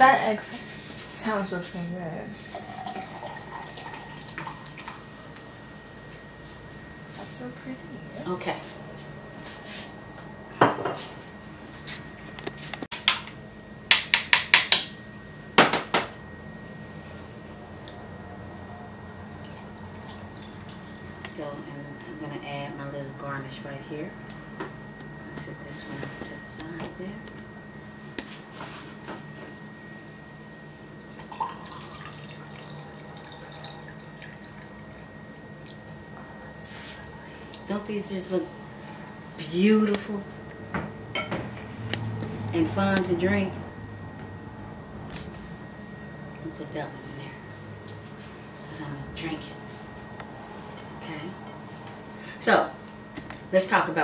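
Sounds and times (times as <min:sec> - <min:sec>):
juice pouring into glass: 0:02.5 - 0:05.0, 0:31.0 - 0:34.9.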